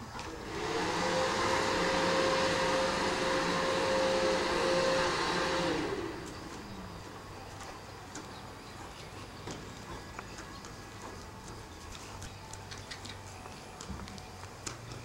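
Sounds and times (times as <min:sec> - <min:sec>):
small motor whining: 0:00.3 - 0:07.6
rushing air: 0:00.4 - 0:06.8.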